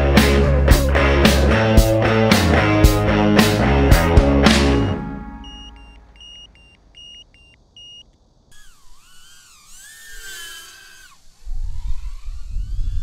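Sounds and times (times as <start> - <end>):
short high beeps: 4.7 - 8.0.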